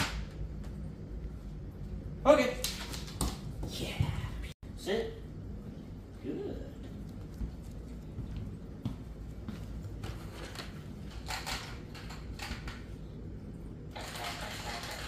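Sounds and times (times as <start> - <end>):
low steady hum: 0.0 - 15.0
toy motor running: 14.0 - 15.0.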